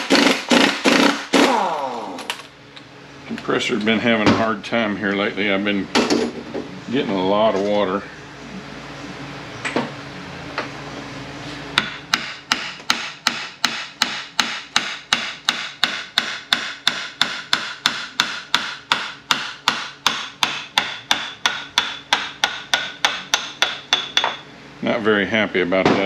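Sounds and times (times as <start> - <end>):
air impact wrench hammering: 0.0 - 2.5, 11.8 - 24.4.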